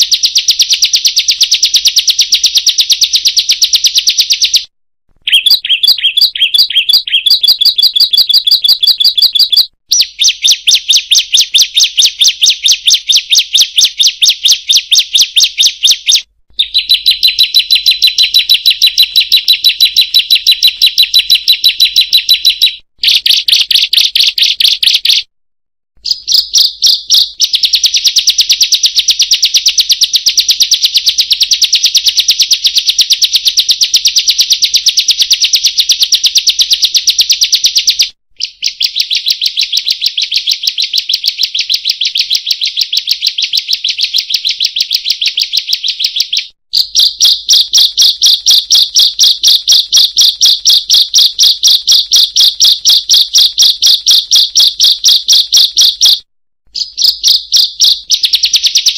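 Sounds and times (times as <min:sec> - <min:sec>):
bird high chattering song: 0:00.0 - 0:25.3, 0:26.0 - 0:58.9.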